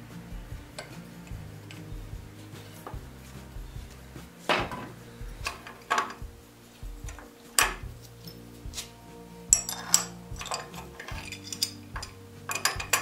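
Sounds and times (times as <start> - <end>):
iron hardware clinking: 4.5 - 13.0.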